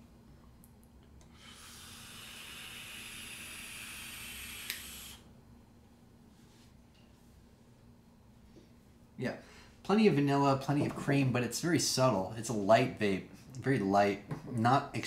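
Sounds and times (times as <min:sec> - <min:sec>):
air hissing through vape: 0:01.3 - 0:05.3.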